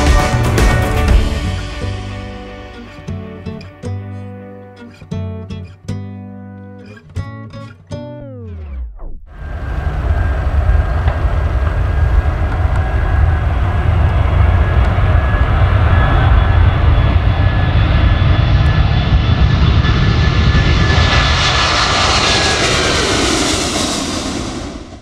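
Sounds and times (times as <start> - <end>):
thin fan whine: 9.3 - 17.7
jet engines rumbling: 9.3 - 25.0.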